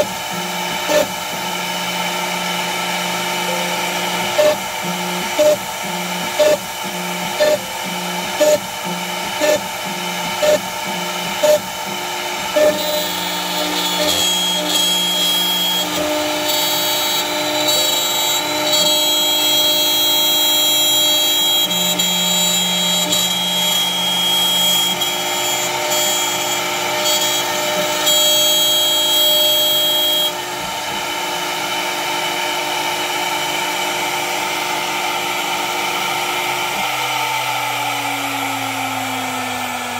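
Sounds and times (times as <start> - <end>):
router milling wood: 0.0 - 39.9
spindle whine: 2.7 - 30.4.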